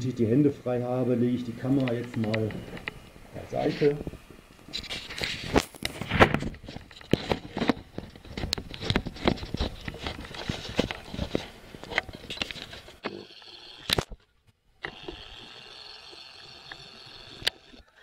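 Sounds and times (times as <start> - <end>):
steady low hiss: 0.0 - 17.8
camera handling knocks and rubbing: 4.7 - 13.0.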